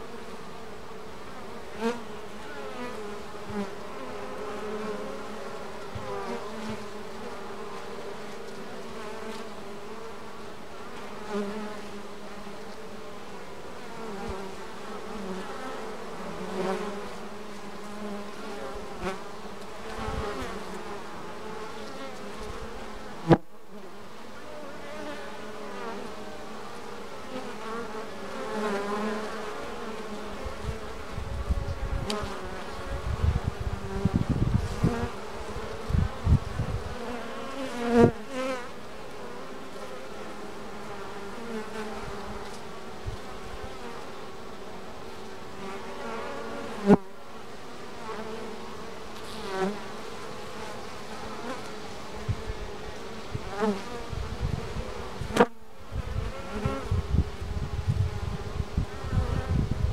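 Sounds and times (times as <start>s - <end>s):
bees buzzing: 0.0s - 59.9s.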